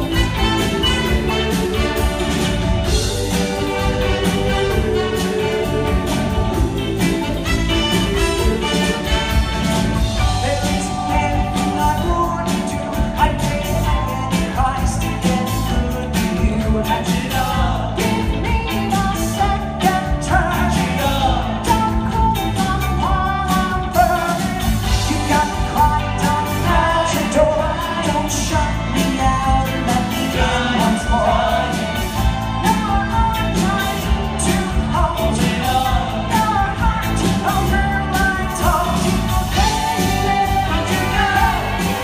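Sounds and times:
men singing together: 0.0s - 9.6s, 23.8s - 42.0s
bass guitar: 0.0s - 42.0s
drums: 0.0s - 42.0s
electric guitar: 0.0s - 42.0s.

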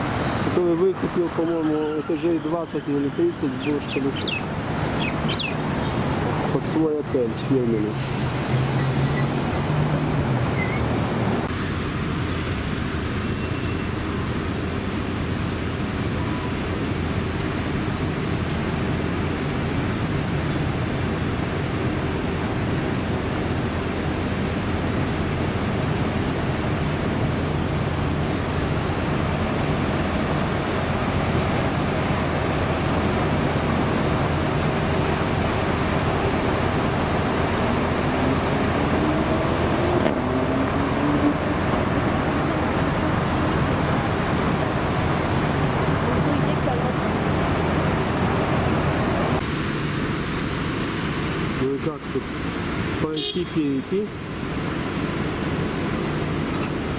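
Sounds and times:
steady road traffic: 0.0s - 56.9s
vehicle engine pulling away: 7.9s - 11.4s, 24.9s - 49.4s.

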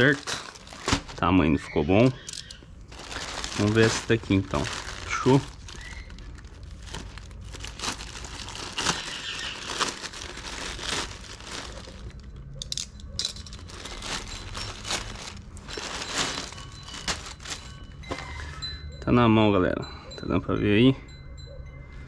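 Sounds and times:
packaging tearing: 0.0s - 1.3s, 2.4s - 12.2s, 13.5s - 17.8s
packaging crinkling: 0.0s - 12.4s, 13.3s - 18.4s.

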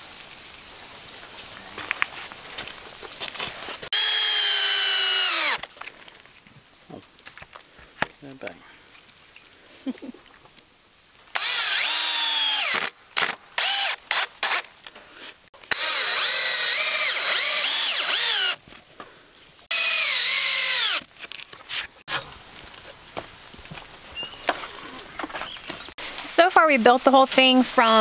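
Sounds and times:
cordless drill motor whine: 3.9s - 5.7s, 11.4s - 12.9s, 15.7s - 18.6s, 19.7s - 21.1s.

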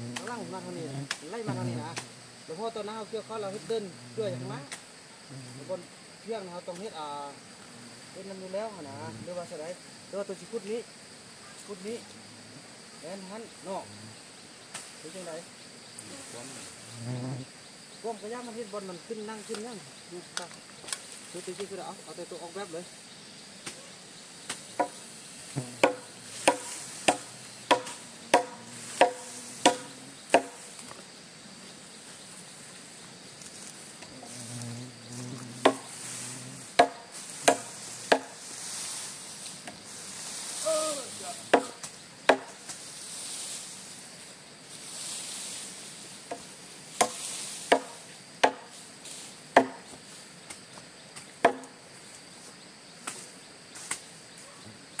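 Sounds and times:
high insect drone: 0.0s - 55.0s
chopping strikes: 25.8s - 30.6s, 35.6s - 35.9s, 36.8s - 38.4s, 41.5s - 42.6s, 47.0s - 48.7s, 49.6s - 49.9s, 51.4s - 51.8s.

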